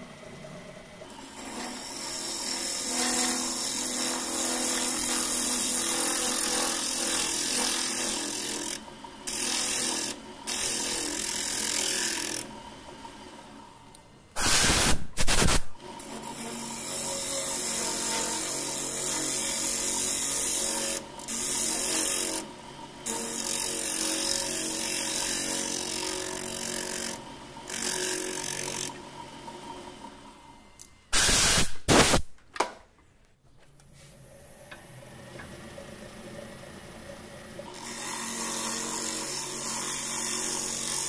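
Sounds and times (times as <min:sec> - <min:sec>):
turning tool cutting wood: 0:01.1 - 0:13.1, 0:14.4 - 0:30.6, 0:37.6 - 0:41.0
loud short bursts: 0:14.4 - 0:15.8, 0:31.1 - 0:32.3
lathe motor hum: 0:15.8 - 0:30.8.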